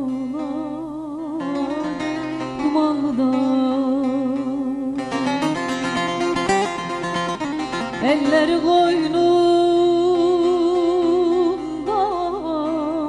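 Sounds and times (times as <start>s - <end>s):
plucked string music: 0.0s - 13.0s.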